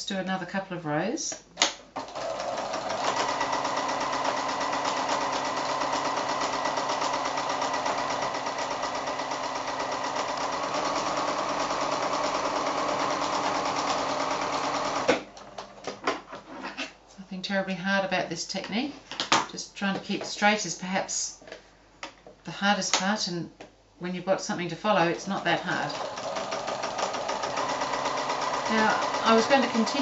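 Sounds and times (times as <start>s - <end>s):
sewing machine needle chatter: 2.0s - 15.1s, 25.2s - 30.0s.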